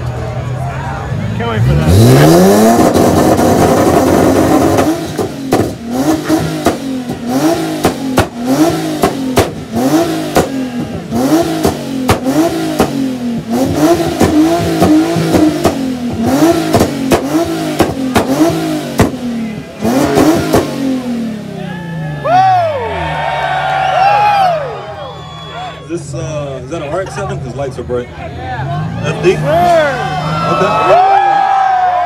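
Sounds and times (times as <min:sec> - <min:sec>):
car engine revving: 0:01.0 - 0:23.5
exhaust cracks: 0:01.8 - 0:21.3.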